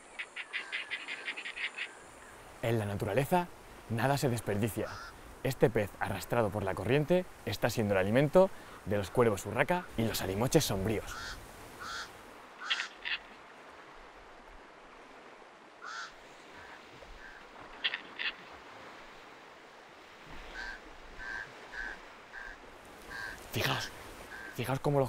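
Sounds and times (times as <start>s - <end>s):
faint steady hiss: 0.0s - 25.0s
crows cawing: 0.2s - 2.5s, 4.9s - 5.2s, 11.1s - 13.4s, 15.8s - 18.5s, 20.4s - 24.6s.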